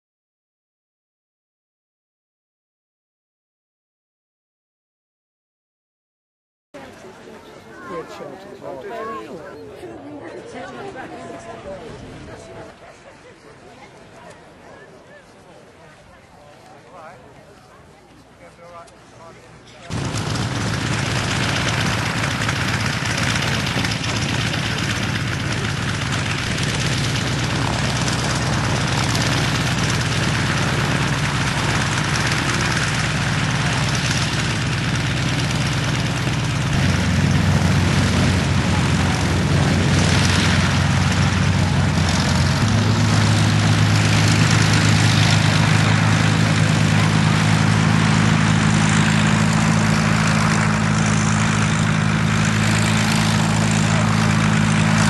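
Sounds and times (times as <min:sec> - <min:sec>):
piston aero engine droning: 0:19.9 - 0:55.0.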